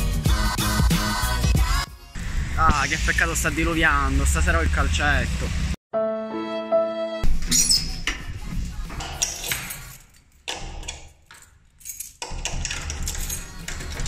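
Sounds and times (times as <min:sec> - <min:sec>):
keys jangling in door lock: 0:09.1 - 0:14.0.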